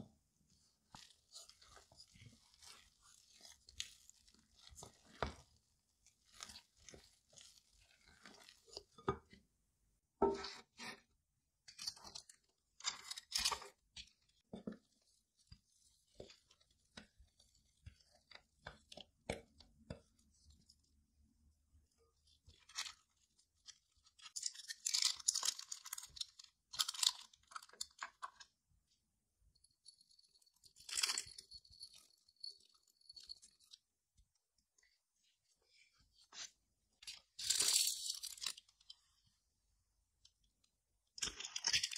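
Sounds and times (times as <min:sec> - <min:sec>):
wet dough squelches: 0:00.2 - 0:10.1, 0:13.6 - 0:24.4.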